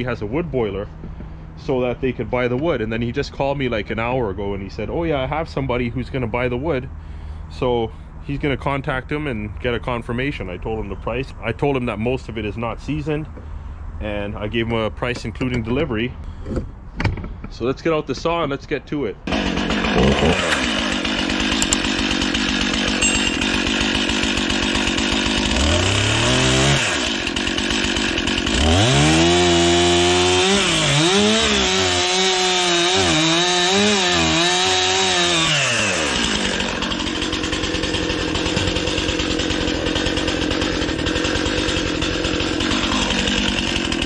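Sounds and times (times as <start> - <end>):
chainsaw idling and revving: 19.2 - 44.0
chainsaw cutting through log: 19.3 - 44.0.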